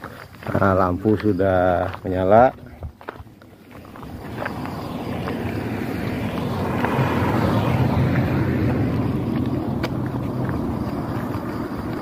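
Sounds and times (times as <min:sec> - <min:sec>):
car driving past: 0:03.7 - 0:12.0.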